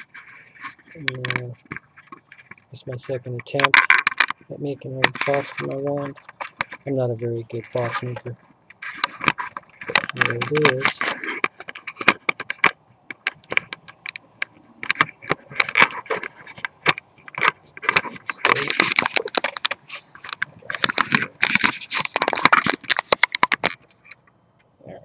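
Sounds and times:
fingers rubbing on microphone: 0:00.0 - 0:03.4, 0:05.0 - 0:24.2.

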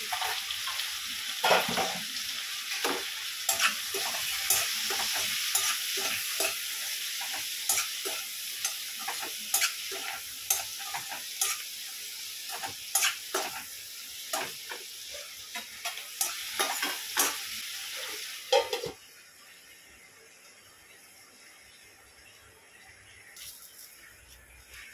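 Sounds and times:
vegetables sizzling in oil: 0:00.0 - 0:24.9
spatula scraping and clicking pan: 0:02.7 - 0:11.7, 0:12.5 - 0:13.7, 0:14.3 - 0:17.4.

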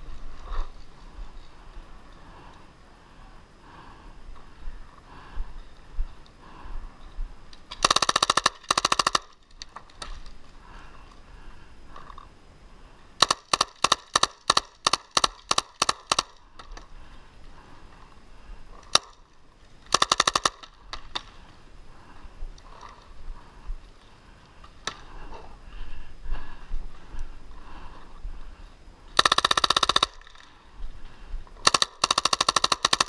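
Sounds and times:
paintball marker firing: 0:07.8 - 0:09.4, 0:13.2 - 0:16.4, 0:19.9 - 0:21.3, 0:31.6 - 0:33.0.

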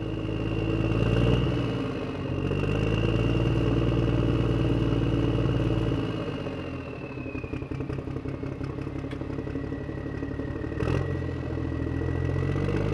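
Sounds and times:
engine chugging: 0:00.0 - 0:12.9.

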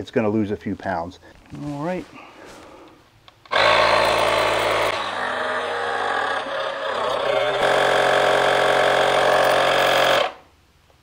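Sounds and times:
small electric compressor running: 0:03.5 - 0:10.4.

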